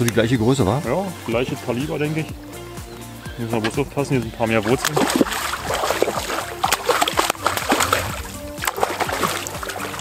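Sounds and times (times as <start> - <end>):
background music: 0.0 - 10.0
fish thrashing and splashing: 4.6 - 10.0.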